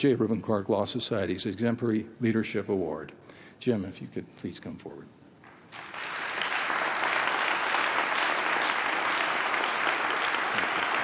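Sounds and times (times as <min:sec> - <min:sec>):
large audience applauding: 0:05.5 - 0:11.0.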